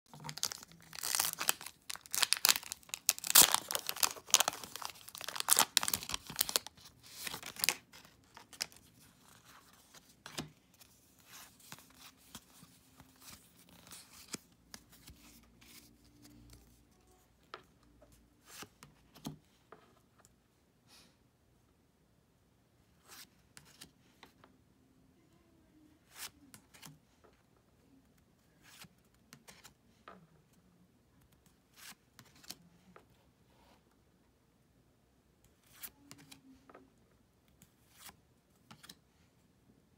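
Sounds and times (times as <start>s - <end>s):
crinkling and rustling: 0.1s - 17.7s.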